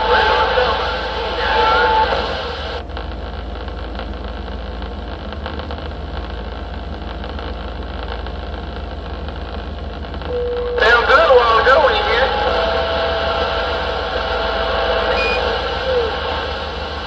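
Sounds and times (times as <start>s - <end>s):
radio static hissing: 0.0s - 17.0s
steady low hum: 0.0s - 17.0s
radio click: 1.6s - 12.6s.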